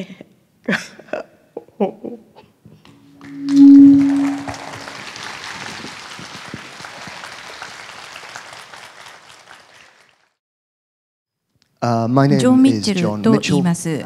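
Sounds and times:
held music note: 3.1s - 5.1s
audience applause: 4.2s - 10.4s.

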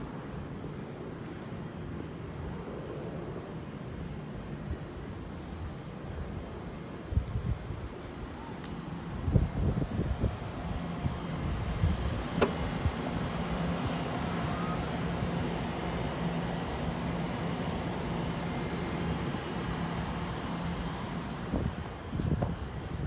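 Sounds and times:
distant city traffic hum: 0.0s - 23.0s
wind on microphone: 5.4s - 8.4s, 9.0s - 13.2s, 21.4s - 23.0s.

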